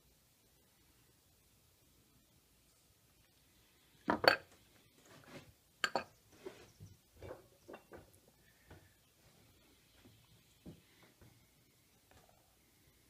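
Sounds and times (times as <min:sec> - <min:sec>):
rustling: 0:02.6 - 0:12.4.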